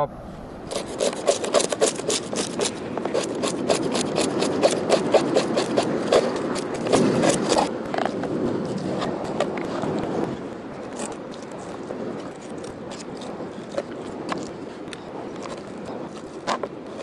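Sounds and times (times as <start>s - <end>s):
knife scraping and slicing fish: 0.7s - 8.2s.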